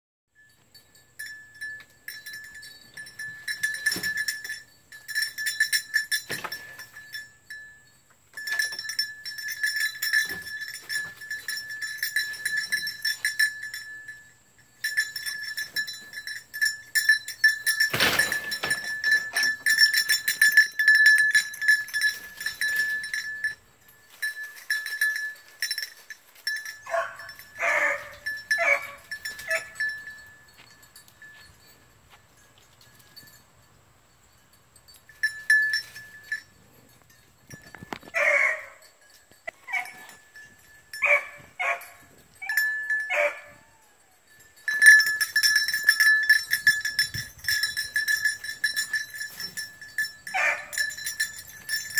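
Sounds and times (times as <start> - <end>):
rapid metallic jingling: 0.4 - 51.9
puppy yelping barks: 26.9 - 29.7, 38.2 - 38.8, 43.1 - 43.5.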